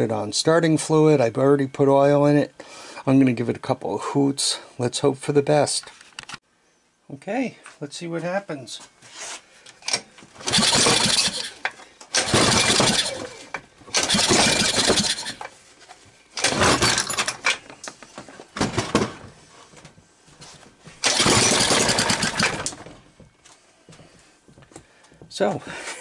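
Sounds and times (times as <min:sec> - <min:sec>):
small engine firing in bursts: 0:10.4 - 0:11.6, 0:12.2 - 0:13.3, 0:13.9 - 0:15.4, 0:21.0 - 0:22.8.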